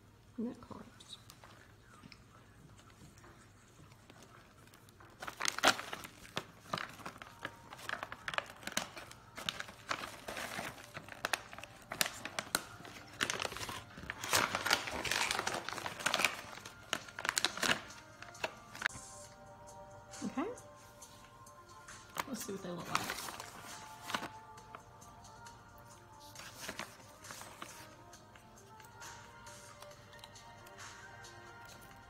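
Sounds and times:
plastic snack pouch crinkling: 0:03.9 - 0:18.9.

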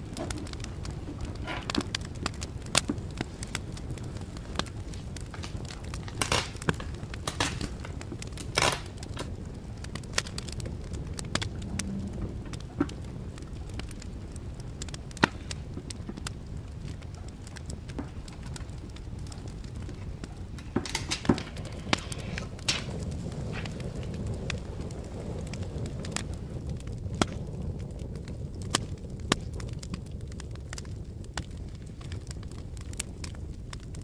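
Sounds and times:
rustling scrapes: 0:20.6 - 0:23.8.

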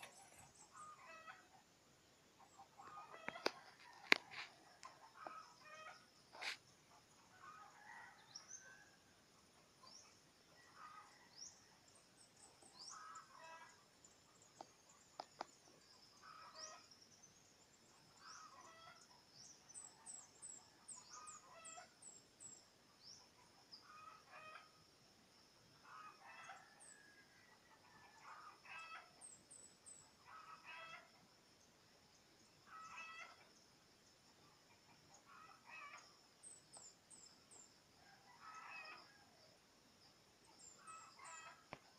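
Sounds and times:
small birds chirping: 0:00.0 - 0:01.6
faint chickens clucking: 0:00.0 - 0:01.7, 0:02.4 - 0:08.7, 0:23.2 - 0:24.8, 0:27.5 - 0:29.4, 0:32.6 - 0:33.5, 0:34.4 - 0:36.8, 0:38.0 - 0:39.5, 0:40.6 - 0:41.9.

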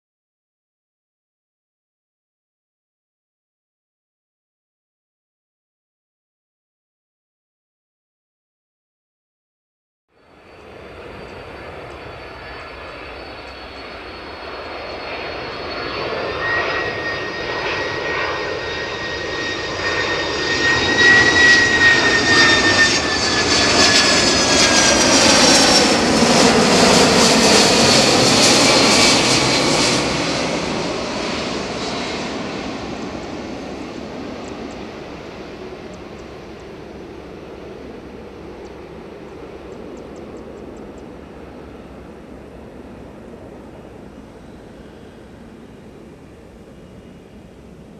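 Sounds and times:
jet plane passing overhead: 0:10.1 - 0:47.9.

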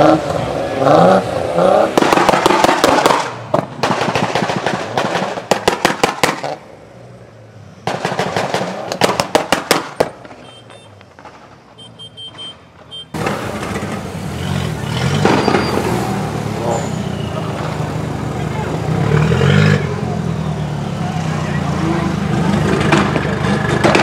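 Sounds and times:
car engine revving: 0:00.0 - 0:05.6, 0:13.2 - 0:24.0
car exhaust popping and banging: 0:01.6 - 0:06.7, 0:07.8 - 0:11.7, 0:12.8 - 0:16.0, 0:22.5 - 0:24.0.

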